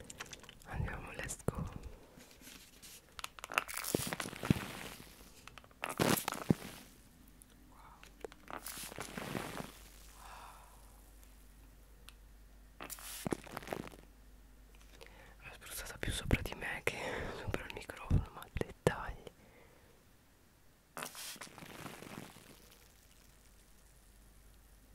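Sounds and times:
plastic wrap crinkling: 0.0s - 0.7s, 1.6s - 7.1s, 8.1s - 10.2s, 12.8s - 14.1s, 21.0s - 24.2s
spray bottle hissing: 21.0s - 21.5s.

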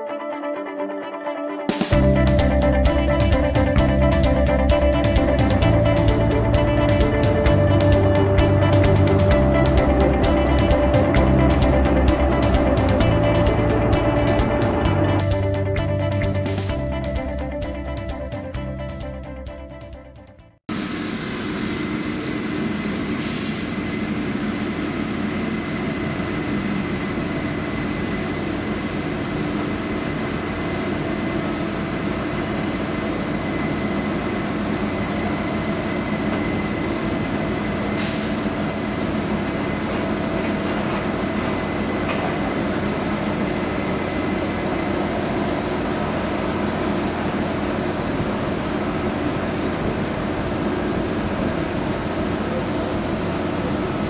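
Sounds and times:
heavy machinery drone: 1.9s - 19.6s, 20.7s - 54.0s
thin steady whine: 20.7s - 54.0s.

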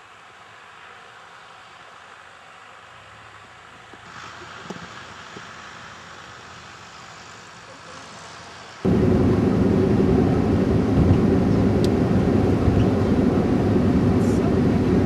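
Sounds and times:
faint outdoor hiss: 0.0s - 14.8s
vehicle driving on snowy road: 0.0s - 15.0s.

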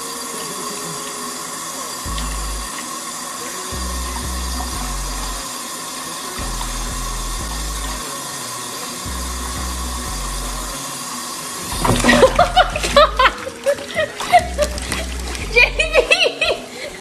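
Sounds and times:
faucet running into bath: 0.0s - 17.0s
loud splash: 11.6s - 13.4s.

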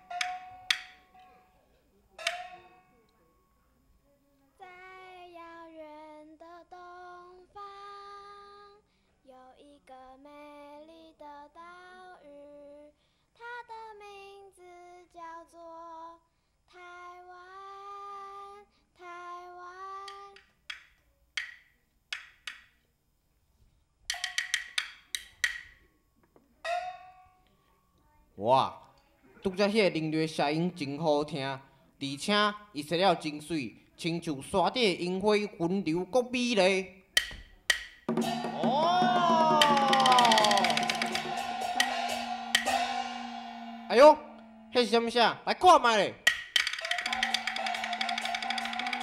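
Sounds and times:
wood block strikes: 0.0s - 1.3s, 2.2s - 2.8s, 20.1s - 22.8s, 24.1s - 25.9s, 26.7s - 27.3s, 37.2s - 44.9s, 46.2s - 49.0s.

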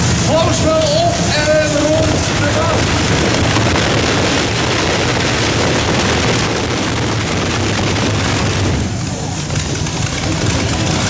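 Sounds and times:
racing tractor engines rumbling: 0.0s - 11.0s.

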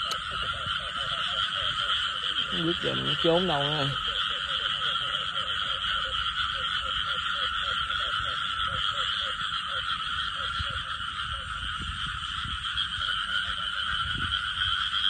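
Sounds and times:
frogs chorus: 0.0s - 15.0s.

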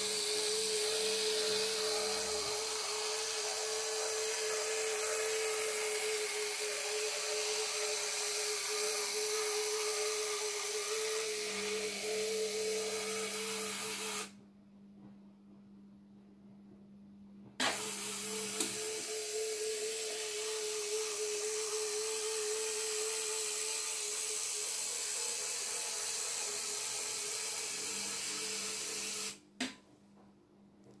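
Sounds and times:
small electric motor whirring: 0.0s - 14.3s, 17.6s - 29.4s.

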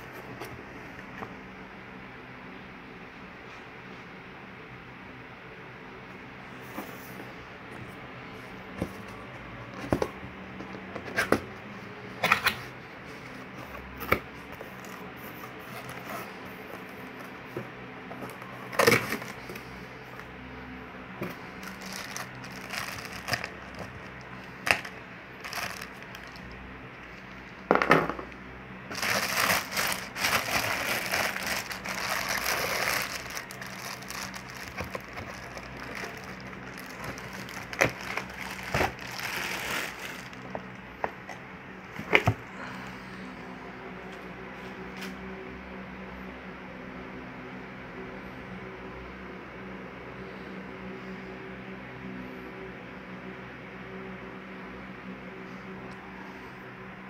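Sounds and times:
plastic bag crinkling: 18.2s - 20.3s, 21.2s - 27.7s, 28.9s - 40.8s.

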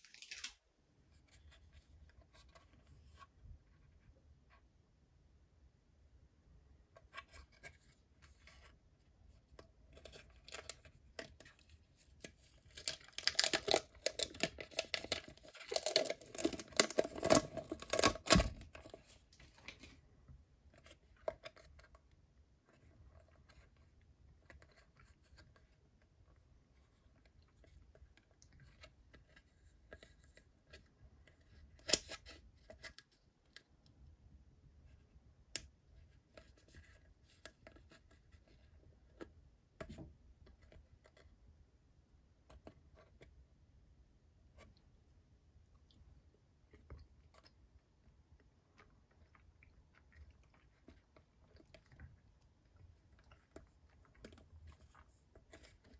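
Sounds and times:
plastic film crinkling: 0.0s - 0.6s, 12.6s - 19.0s
plastic handling: 7.0s - 22.0s.

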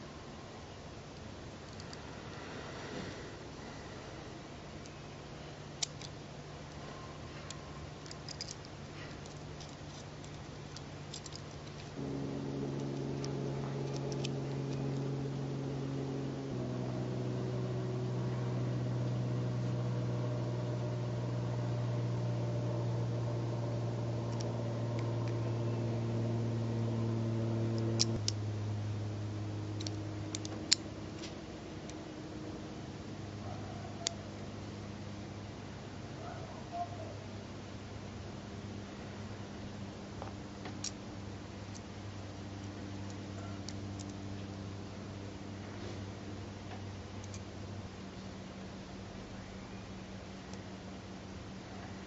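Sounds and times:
sustained held chords: 12.0s - 33.0s.

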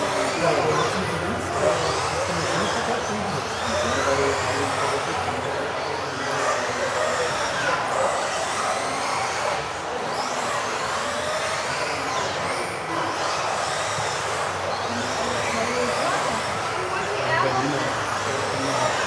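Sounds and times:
rc car electric motors whining: 0.0s - 19.0s.

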